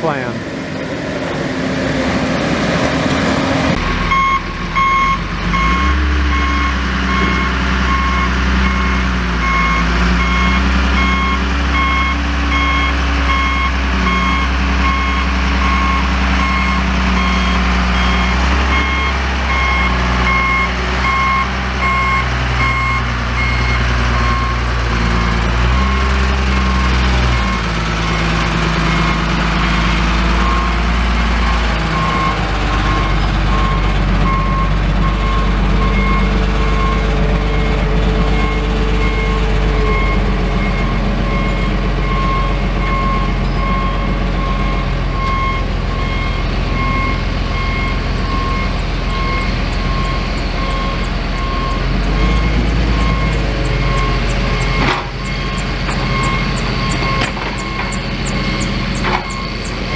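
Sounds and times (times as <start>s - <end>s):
diesel engine running: 0.0s - 59.9s
backup alarm beeping: 4.1s - 24.6s, 38.4s - 59.9s.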